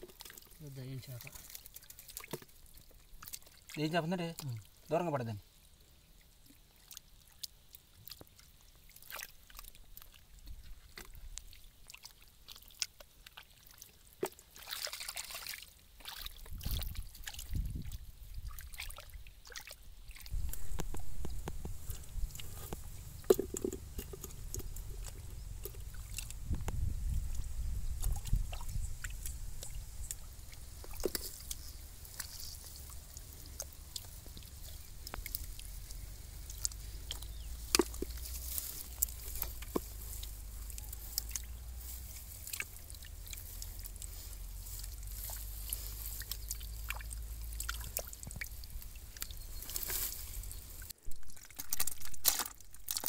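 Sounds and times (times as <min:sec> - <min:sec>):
hands splashing in shallow water: 0:14.2 - 0:53.0
low steady rumble: 0:20.3 - 0:51.0.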